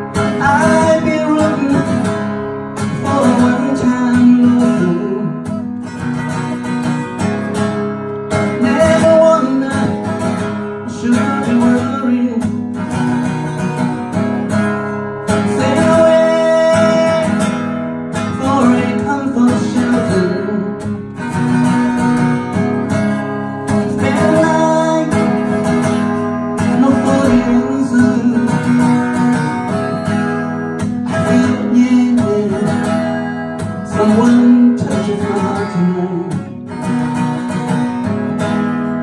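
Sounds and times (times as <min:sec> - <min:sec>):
acoustic guitar strumming: 0:00.0 - 0:39.0
person singing: 0:00.1 - 0:02.2, 0:02.8 - 0:05.5, 0:08.5 - 0:12.6, 0:15.4 - 0:17.5, 0:18.2 - 0:20.9, 0:23.7 - 0:25.8, 0:26.6 - 0:29.1, 0:31.1 - 0:36.6.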